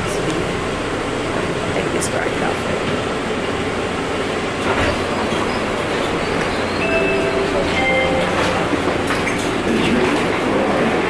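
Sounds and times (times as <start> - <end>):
train car rumble and hum: 0.0 - 11.0
brief tones: 6.8 - 9.0.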